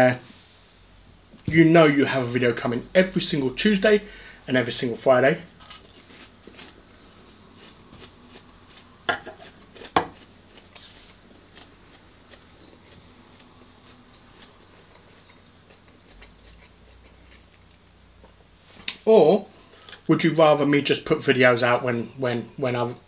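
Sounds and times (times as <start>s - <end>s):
faint chewing: 5.5s - 19.0s.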